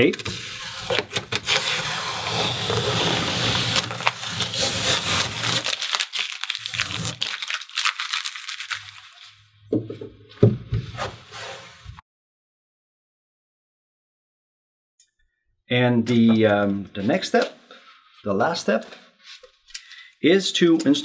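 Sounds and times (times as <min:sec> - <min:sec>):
masking tape peeling and crumpling: 0:00.4 - 0:09.4.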